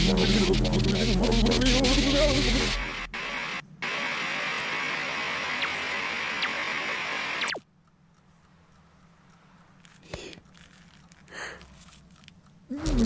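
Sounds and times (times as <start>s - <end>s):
loud steady hiss: 0.0s - 7.6s
faint ticks: 7.4s - 12.6s.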